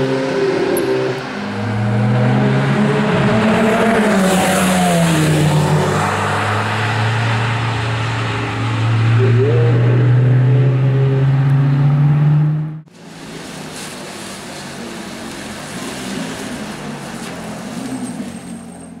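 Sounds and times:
tyres hissing on wet road: 0:12.9 - 0:19.0.

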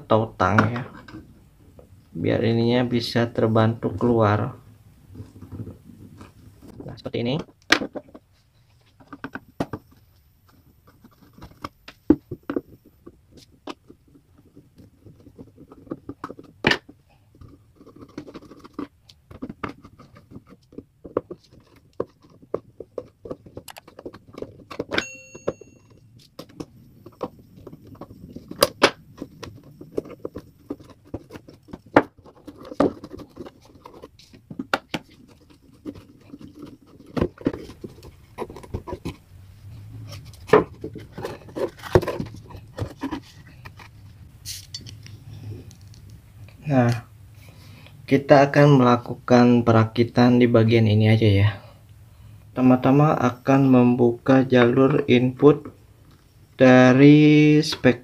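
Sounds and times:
metal tools prying and scraping wood: 0:15.2 - 0:39.3, 0:40.0 - 0:45.0
brief ringing note: 0:25.0 - 0:25.8.

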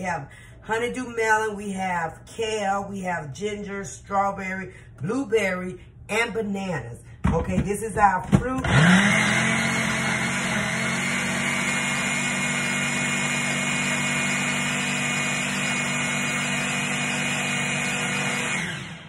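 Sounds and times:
blender running: 0:08.6 - 0:19.0.

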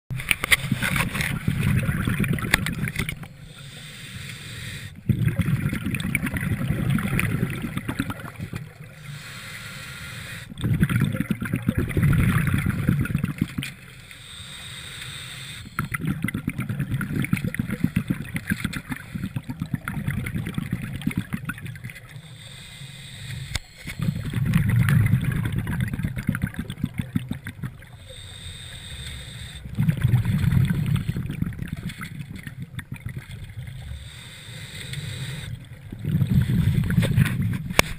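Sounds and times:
exhaled bubbles underwater: 0:00.1 - 0:03.8, 0:05.0 - 0:09.1, 0:10.5 - 0:13.9, 0:15.4 - 0:37.9
regulator inhalation hiss: 0:03.4 - 0:05.0, 0:09.0 - 0:10.5, 0:13.9 - 0:16.0, 0:22.2 - 0:24.3, 0:27.9 - 0:29.7, 0:33.9 - 0:35.6.

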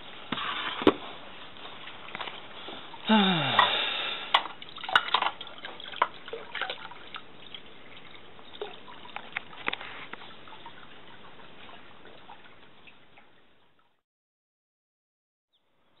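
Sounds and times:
water trickling into basin: 0:01.3 - 0:14.0.

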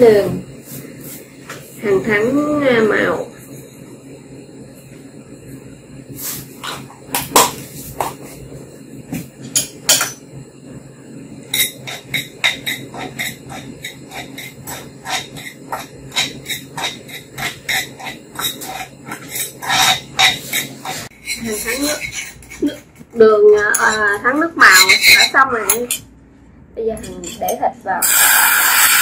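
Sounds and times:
metal spoon scraping clay pot: 0:11.5 - 0:26.0, 0:27.0 - 0:29.0.

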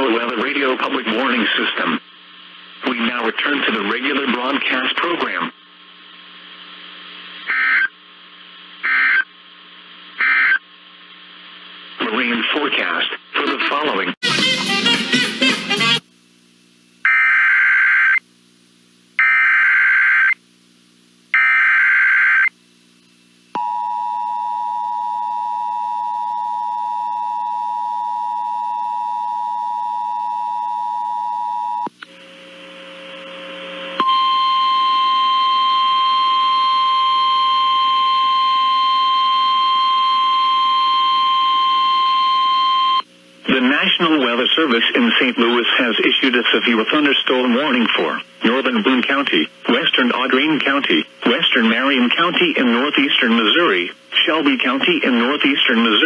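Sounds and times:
buzzy digital header tones: 0:07.4 - 0:08.0, 0:08.8 - 0:09.3, 0:10.2 - 0:10.6.

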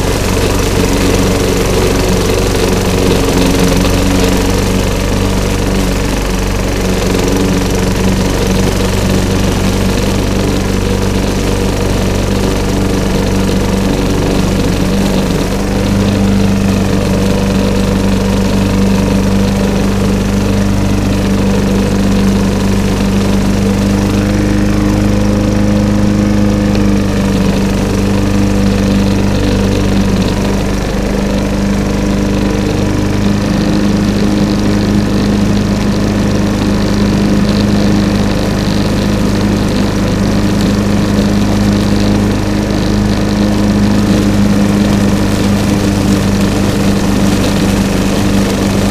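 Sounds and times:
lawn mower running: 0:00.0 - 0:48.9.

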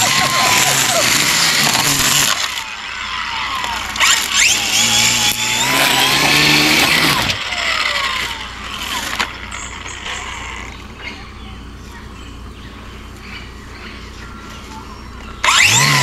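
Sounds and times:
string trimmer motor whine: 0:00.0 - 0:11.0, 0:15.4 - 0:16.0.

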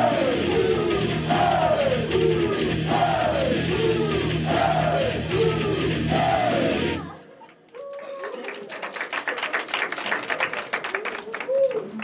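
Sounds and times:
loud pop-rock song: 0:00.0 - 0:07.2.

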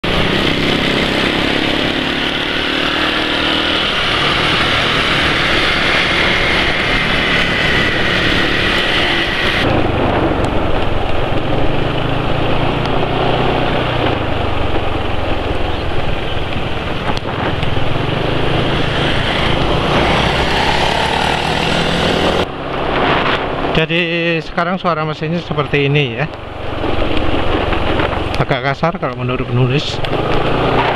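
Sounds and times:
scooter engine running: 0:00.0 - 0:09.7
road noise: 0:00.0 - 0:30.9
wind noise: 0:00.0 - 0:30.9
high whine rising in pitch: 0:00.2 - 0:11.0, 0:16.8 - 0:22.5.

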